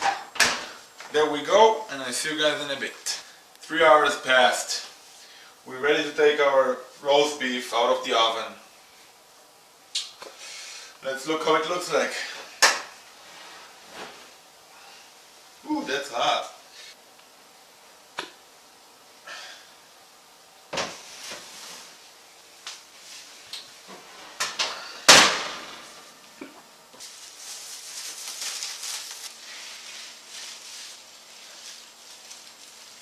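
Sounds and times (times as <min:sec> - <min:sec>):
plastic bag crinkling: 0:27.0 - 0:33.0.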